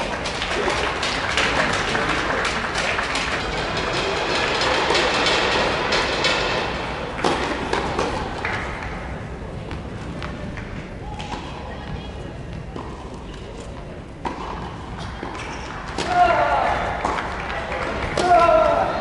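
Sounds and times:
spectators applauding: 0:00.0 - 0:06.1, 0:16.7 - 0:18.2.

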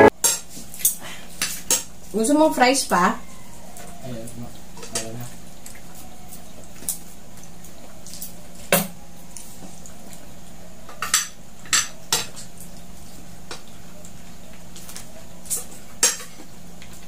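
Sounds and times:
cutlery clinking on plates: 0:04.8 - 0:05.2, 0:10.9 - 0:12.6, 0:15.5 - 0:16.5.

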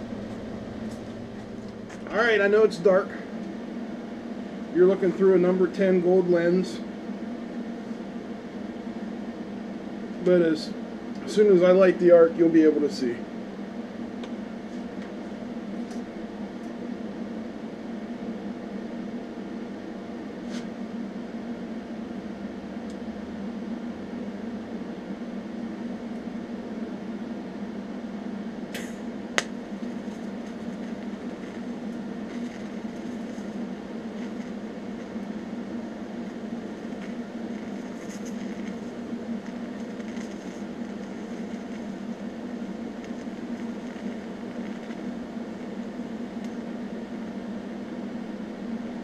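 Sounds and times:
welding machine hum: 0:00.0 - 0:08.3, 0:24.0 - 0:49.0
sharp click: 0:28.7 - 0:29.5.

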